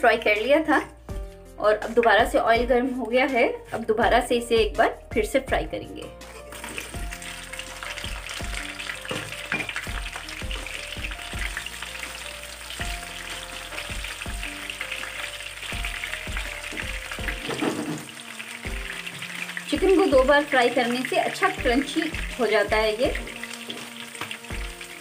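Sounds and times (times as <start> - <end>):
background music: 0.0 - 25.0
chicken sizzling in hot oil: 6.2 - 25.0.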